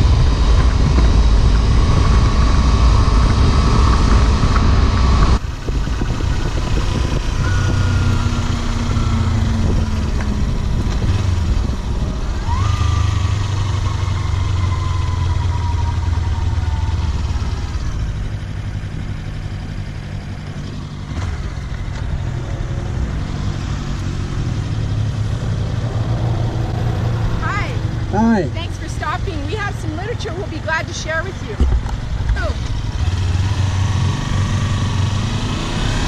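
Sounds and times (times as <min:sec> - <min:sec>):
wind rushing: 0:00.0 - 0:12.7
motorcycle engine running: 0:00.0 - 0:36.0.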